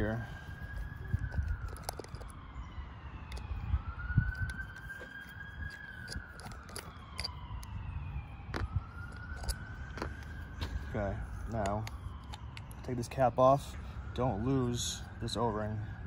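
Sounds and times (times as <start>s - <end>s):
siren wailing: 0.0s - 16.0s
screwdriver clicks: 4.3s - 7.7s.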